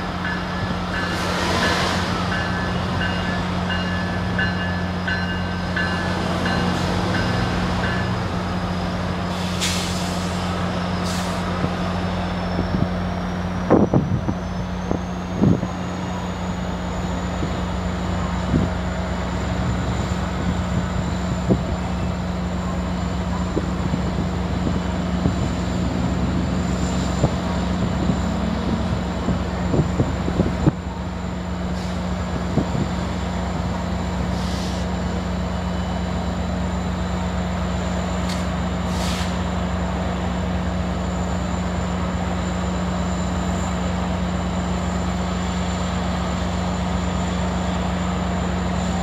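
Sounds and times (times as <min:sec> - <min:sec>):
diesel locomotive humming: 0:00.0 - 0:49.0.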